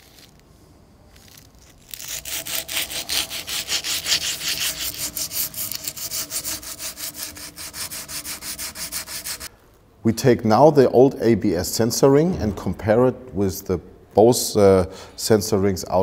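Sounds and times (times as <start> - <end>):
abrasive cloth rasping on metal: 1.7 - 9.5.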